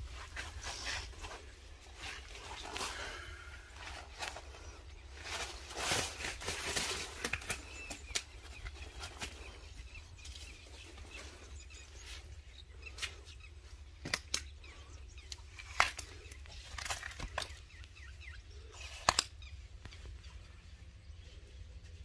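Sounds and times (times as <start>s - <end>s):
fishing net rustling: 0.0s - 11.4s.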